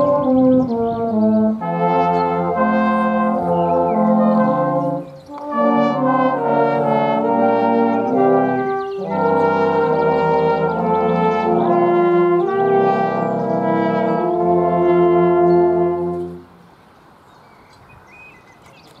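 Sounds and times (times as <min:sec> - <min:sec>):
brass band playing a hymn: 0:00.0 - 0:16.7
faint outdoor background sound: 0:00.0 - 0:19.0.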